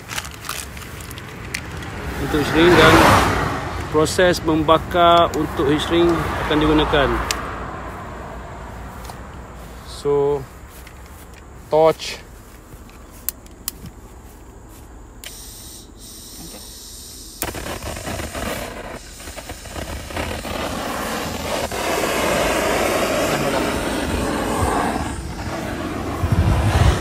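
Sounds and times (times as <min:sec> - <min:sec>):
blowtorch hissing: 0:16.0 - 0:27.0
blowtorch igniting: 0:16.1 - 0:27.0.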